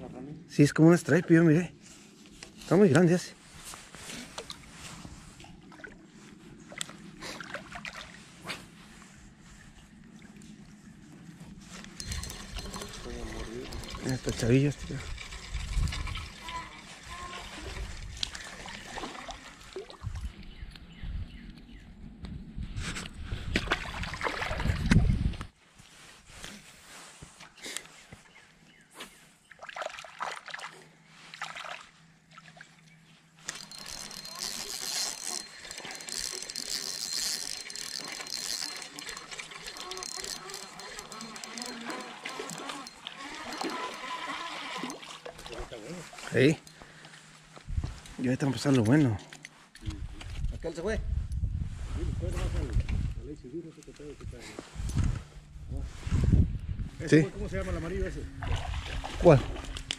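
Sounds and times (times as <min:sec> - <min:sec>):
water trickling and sloshing: 0:03.5 - 0:20.5, 0:23.6 - 0:25.3, 0:29.4 - 0:50.4, 0:58.3 - 0:59.9.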